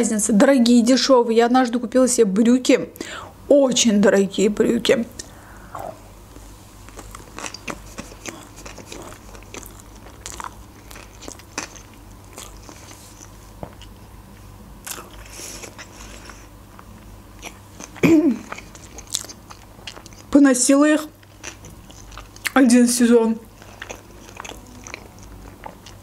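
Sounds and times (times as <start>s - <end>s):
person chewing: 5.2s - 14.0s, 14.8s - 20.3s, 21.2s - 22.6s, 23.5s - 26.0s.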